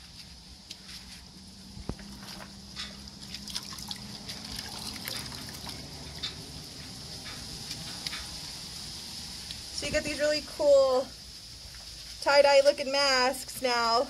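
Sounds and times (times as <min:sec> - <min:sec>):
water splashing and dripping in bowl: 0:01.9 - 0:06.6.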